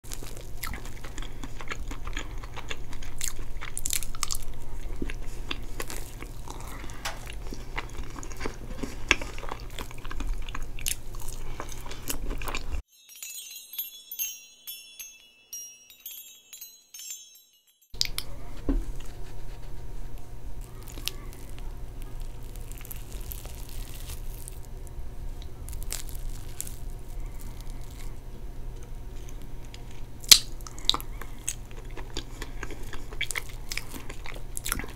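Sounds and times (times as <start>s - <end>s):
chewing and biting: 0.1s - 12.8s, 20.6s - 24.7s, 25.4s - 28.2s, 29.2s - 34.9s
steady low hum: 0.1s - 12.8s, 18.0s - 34.9s
chiming jingle: 12.9s - 18.2s.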